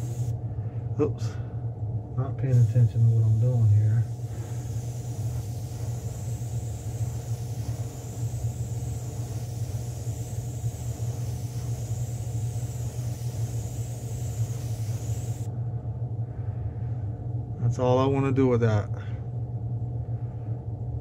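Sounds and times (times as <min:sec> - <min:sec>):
airbrush air hissing: 0:00.0 - 0:00.4, 0:02.5 - 0:15.5
low machine hum: 0:00.0 - 0:21.0.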